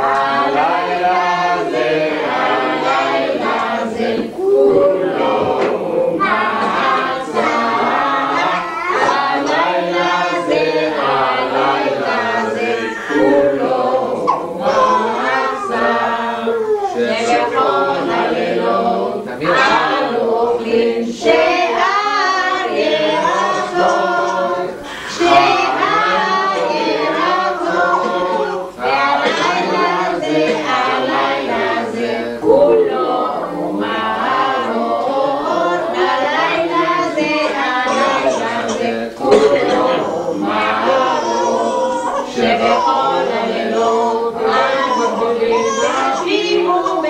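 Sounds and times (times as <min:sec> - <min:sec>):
group singing unaccompanied: 0:00.0 - 0:47.0.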